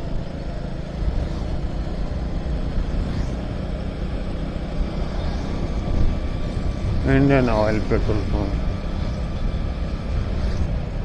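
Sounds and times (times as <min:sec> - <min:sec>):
motorcycle engine drone: 0:00.0 - 0:11.0
wind rush over microphone: 0:04.4 - 0:11.0.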